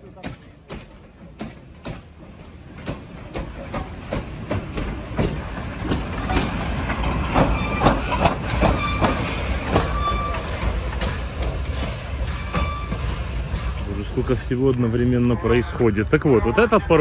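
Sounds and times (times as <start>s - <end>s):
steam locomotive chugging past: 0.0s - 17.0s
high squeaks: 7.3s - 10.8s, 12.3s - 13.2s.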